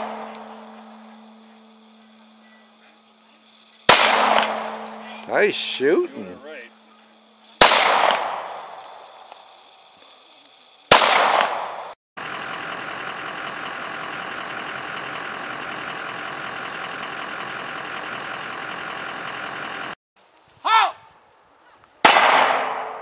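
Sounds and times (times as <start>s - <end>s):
pistol shots with echo: 0.0s - 0.4s, 3.9s - 5.0s, 7.6s - 8.6s, 10.9s - 11.9s, 22.0s - 23.0s
steady hiss: 0.0s - 12.0s.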